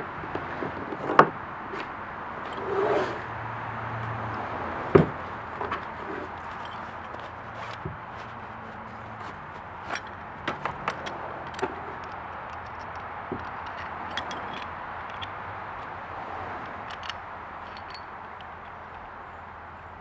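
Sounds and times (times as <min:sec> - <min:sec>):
metal anchor clinking: 0:01.8 - 0:03.2, 0:04.8 - 0:15.4, 0:16.7 - 0:18.8.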